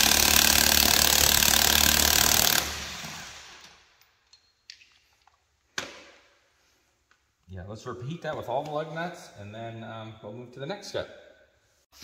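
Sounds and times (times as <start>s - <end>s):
impact wrench hammering: 0.0s - 3.7s.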